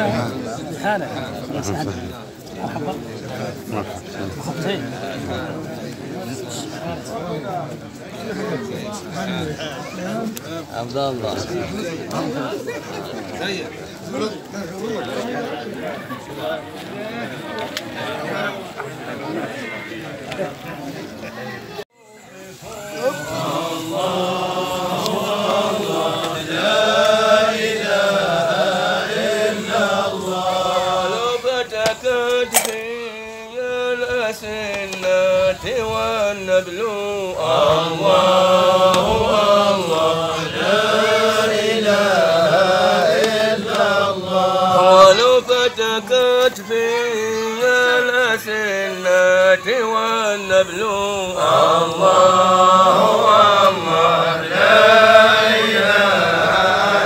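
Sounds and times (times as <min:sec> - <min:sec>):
men chanting: 0:22.2 - 0:57.0.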